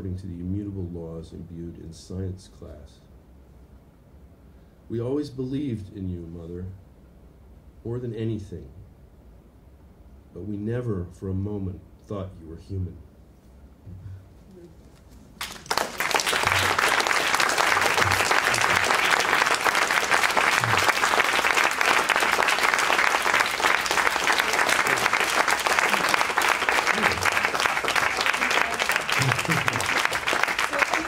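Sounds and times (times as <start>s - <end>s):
audience applauding: 15.4s - 31.0s.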